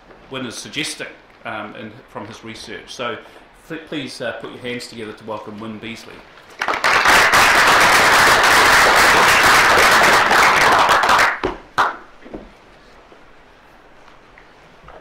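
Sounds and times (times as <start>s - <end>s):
audience applauding: 6.5s - 12.1s.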